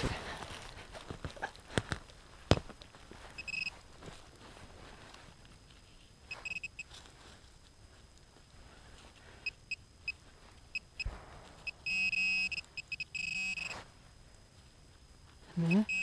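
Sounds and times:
gloved hands rustling dirt: 0:00.0 - 0:11.7
metal detector short high beeps: 0:03.4 - 0:03.7, 0:06.3 - 0:06.9, 0:11.7 - 0:13.8, 0:15.7 - 0:16.0.

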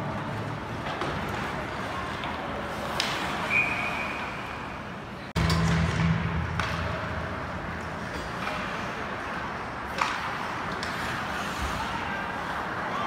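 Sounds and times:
crowd hubbub in arena: 0:00.0 - 0:13.0
clacks of sticks and puck: 0:00.7 - 0:03.5, 0:08.1 - 0:12.8
low hum: 0:05.3 - 0:09.1
skates on ice: 0:08.4 - 0:13.0.

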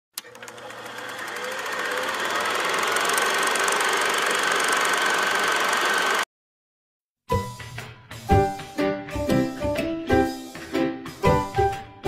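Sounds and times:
film projector clatter: 0:00.2 - 0:06.2
projector motor whine: 0:00.2 - 0:06.2.

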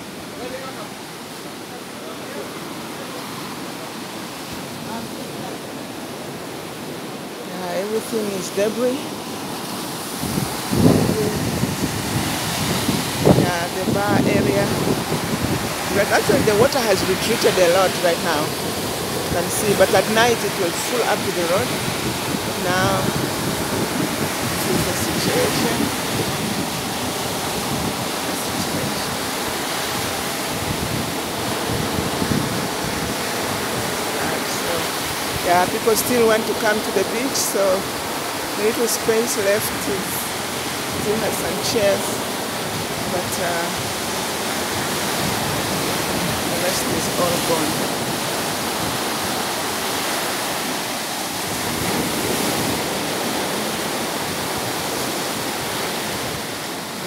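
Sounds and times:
waves washing up on beach: 0:00.0 - 0:57.0.

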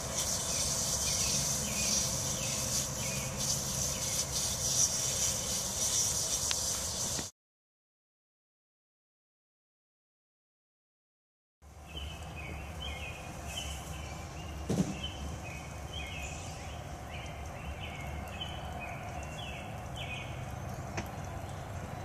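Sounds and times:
low outdoor rumble: 0:00.0 - 0:07.1, 0:11.6 - 0:22.0
sharp thump: 0:14.7 - 0:15.1.

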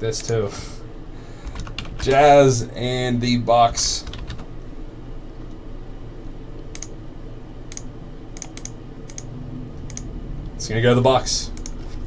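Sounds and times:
low steady hum: 0:00.0 - 0:12.0
computer mouse clicking: 0:06.6 - 0:06.9, 0:07.7 - 0:10.1, 0:11.5 - 0:12.0.

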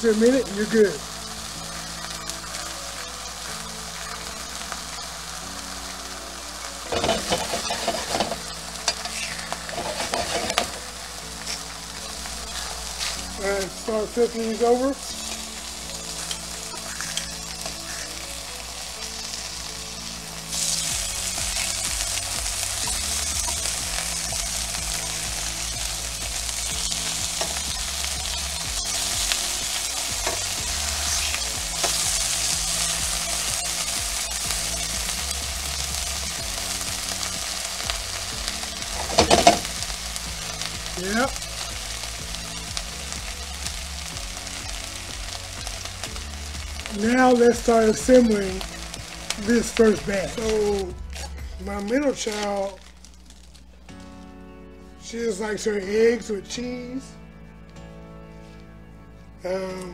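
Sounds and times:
bacon sizzling in a skillet: 0:00.0 - 0:54.1
metal tongs scraping a pan: 0:06.9 - 0:10.8, 0:28.3 - 0:34.5.

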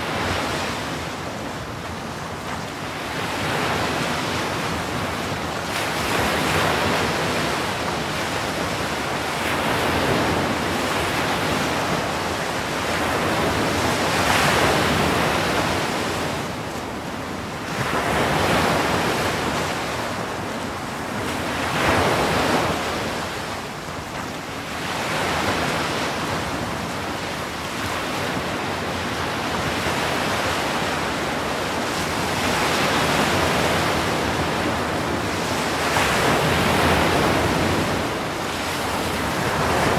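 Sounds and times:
waves breaking: 0:00.0 - 0:39.9.

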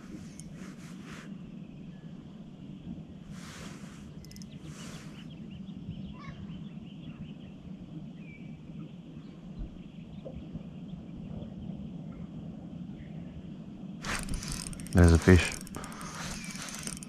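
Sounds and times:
brief rustle: 0:00.0 - 0:01.3, 0:03.3 - 0:05.3, 0:14.0 - 0:17.0
distant birds chirping: 0:03.4 - 0:05.6, 0:14.0 - 0:17.0.

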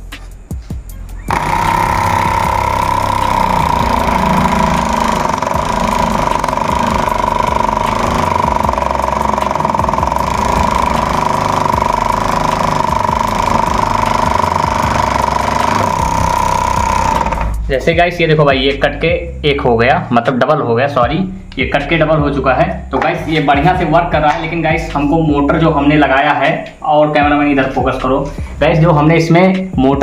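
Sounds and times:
scroll saw cutting board: 0:01.3 - 0:17.6.

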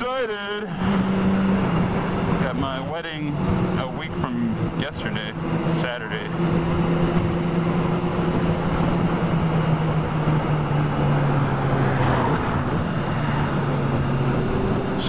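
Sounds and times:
motorcycle engine cruising: 0:00.0 - 0:15.0
wind noise on microphone: 0:06.4 - 0:15.0.

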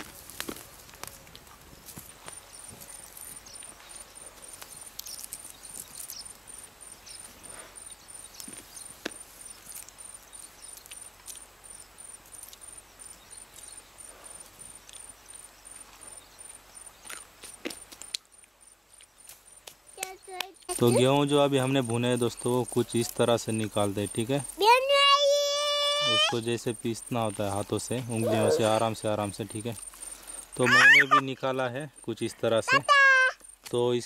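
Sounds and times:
hands rustling in dry stubble: 0:00.0 - 0:11.5, 0:21.9 - 0:31.2
insect chirping: 0:00.0 - 0:34.0.

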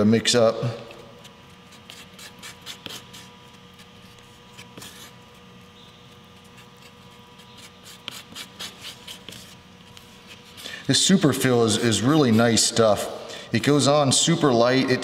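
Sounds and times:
faint steady hum: 0:00.0 - 0:15.0
stir stick scraping on cardboard: 0:01.2 - 0:12.8.

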